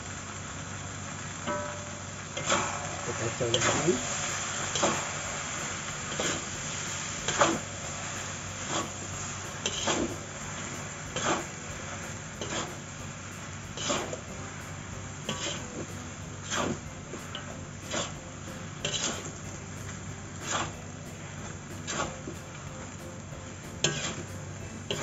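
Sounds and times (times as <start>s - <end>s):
steady hiss: 0.0s - 25.0s
metal spatula scraping a wok: 2.4s - 25.0s.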